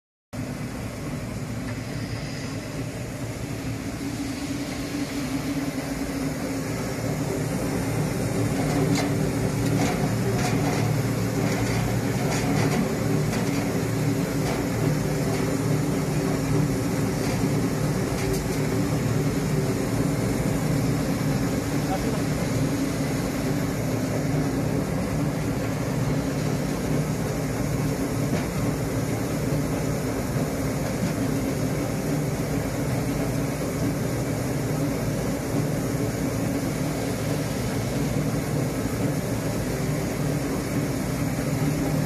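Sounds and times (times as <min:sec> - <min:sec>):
machine humming: 0:00.4 - 0:42.0.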